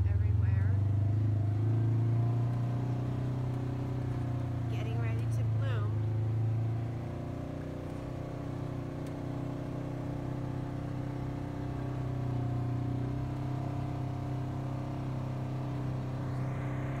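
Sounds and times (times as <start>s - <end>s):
off-road vehicle engine droning: 0.0s - 17.0s.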